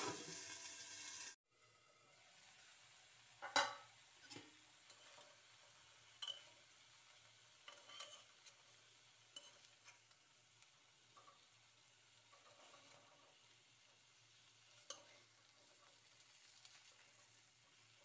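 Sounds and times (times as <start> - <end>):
tomatoes sizzling in oil: 0.0 - 18.0
spatula scraping and knocking pan: 7.6 - 8.7.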